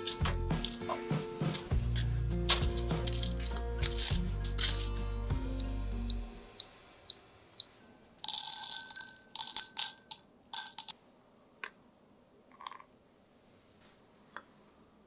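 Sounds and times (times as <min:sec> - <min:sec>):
coffee beans rattling into glass jar: 0:03.1 - 0:05.0, 0:08.2 - 0:10.9.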